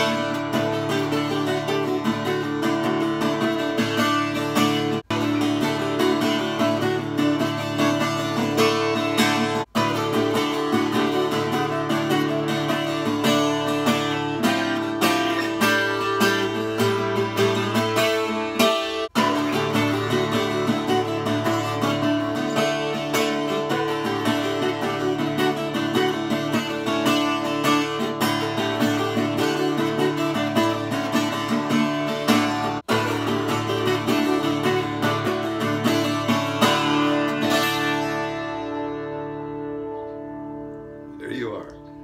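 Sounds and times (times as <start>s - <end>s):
acoustic guitar folk tune: 0.0s - 42.0s.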